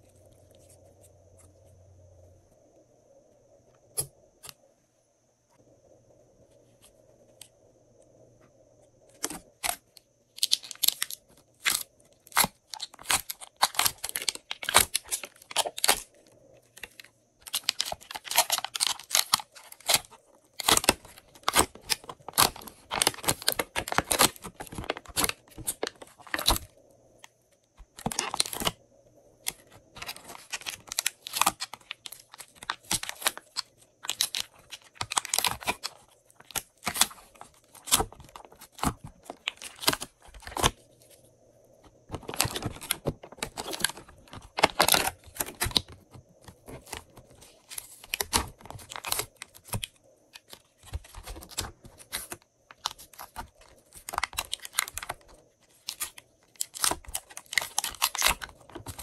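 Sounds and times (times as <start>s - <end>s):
slime crackling and tearing: 29.5s - 40.7s, 55.9s - 59.0s.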